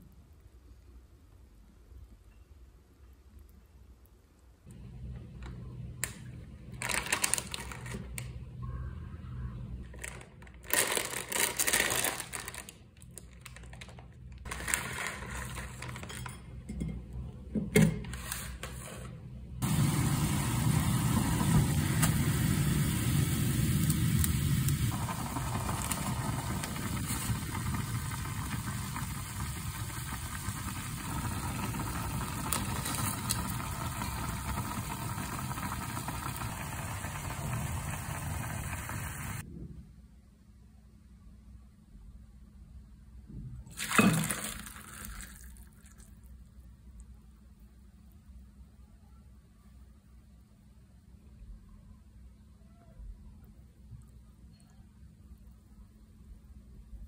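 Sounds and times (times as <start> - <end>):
plastic packet crinkling: 6.8 - 8.2, 9.9 - 16.1
water bubbling at a rolling boil: 19.6 - 39.4.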